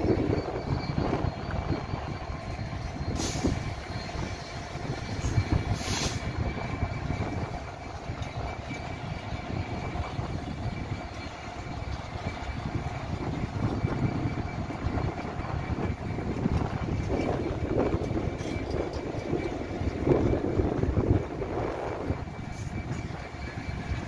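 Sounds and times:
diesel locomotive rumble: 0.0 - 24.0
thin steady whine: 0.0 - 24.0
short hisses: 5.8 - 6.2.

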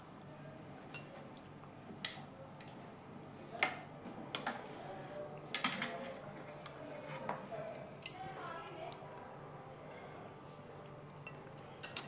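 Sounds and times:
tongs clinking against pot and bowls: 0.9 - 1.2, 11.2 - 12.0.

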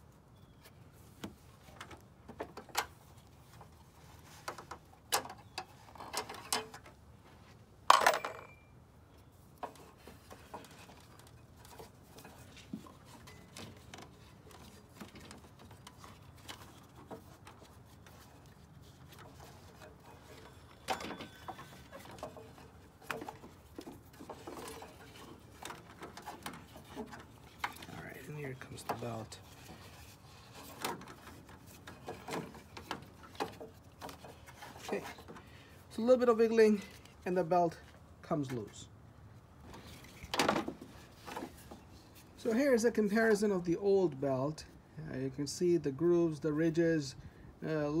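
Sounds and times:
metal clinks and knocks of wrench: 7.9 - 8.7.

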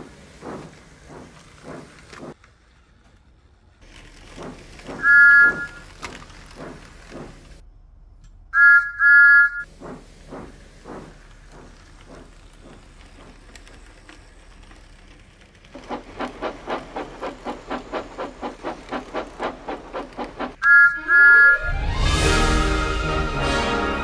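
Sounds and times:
steam engine chuffing: 0.0 - 2.4, 3.8 - 7.6, 9.6 - 23.5
steam locomotive whistle toots: 4.9 - 6.1, 8.6 - 9.7, 20.5 - 24.0.

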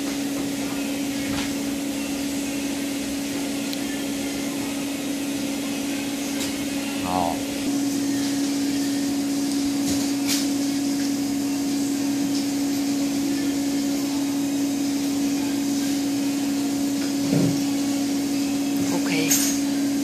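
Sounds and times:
electric motor humming: 0.0 - 20.0.

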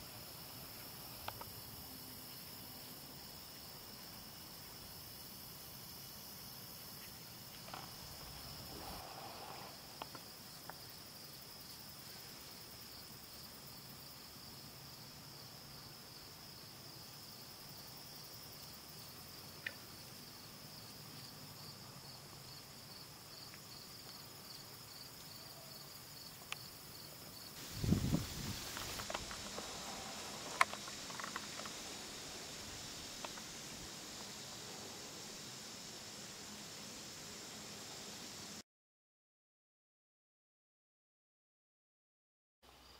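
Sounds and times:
insect chorus: 0.0 - 38.6, 42.7 - 42.9
faint clicks: 28.6 - 32.0.

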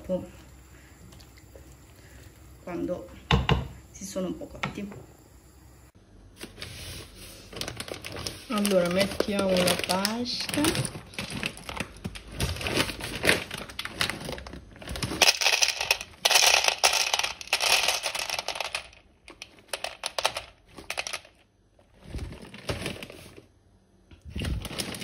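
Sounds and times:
dry pasta pouring into plastic bowl: 6.7 - 21.4.

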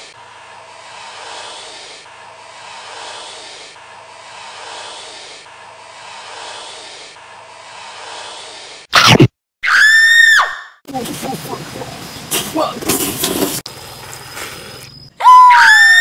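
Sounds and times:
snake hissing: 0.0 - 8.9, 13.6 - 15.1.

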